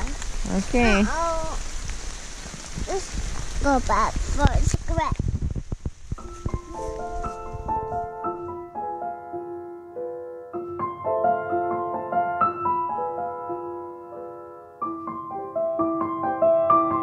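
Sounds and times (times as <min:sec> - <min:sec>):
slow piano melody: 0:06.2 - 0:17.0.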